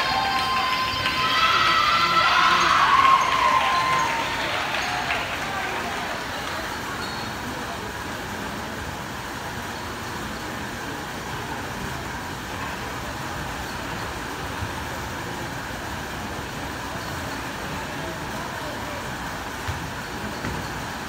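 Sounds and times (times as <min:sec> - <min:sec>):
murmur of people chatting: 0:00.0 - 0:21.0.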